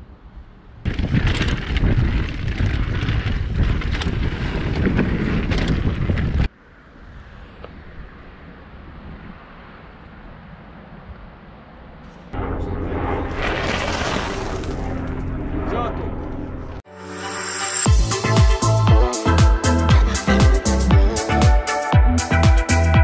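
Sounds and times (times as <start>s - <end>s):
wind buffeting microphone: 0.8s - 6.5s.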